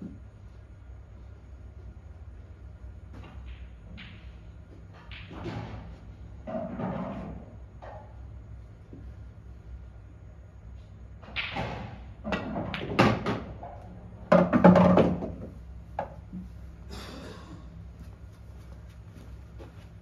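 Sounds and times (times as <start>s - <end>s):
ball rolling down ball return: 3.0s - 9.1s, 11.2s - 16.5s
pool balls clacking: 11.2s - 16.4s.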